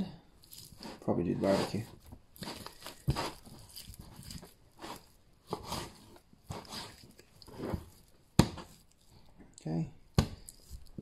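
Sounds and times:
knife slicing raw meat: 0.5s - 8.9s.

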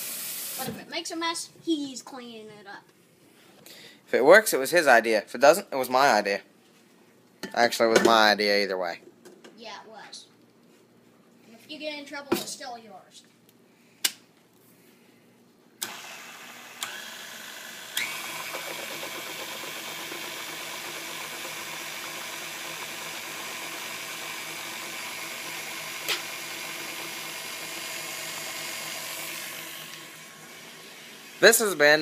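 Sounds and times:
stand mixer motor whining: 15.8s - 31.4s.

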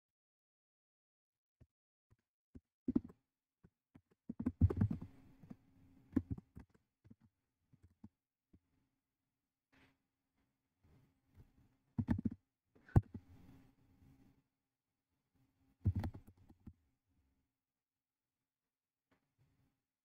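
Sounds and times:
keyboard typing: 4.0s - 5.6s, 12.0s - 12.4s.

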